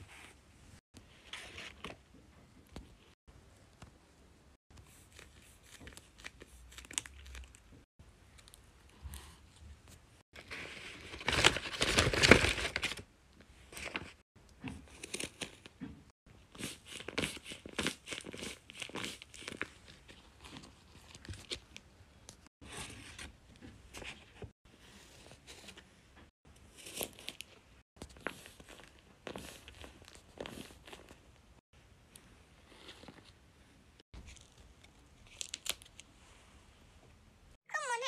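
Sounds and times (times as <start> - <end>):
paper crinkling and tearing: 10.4 - 13.0.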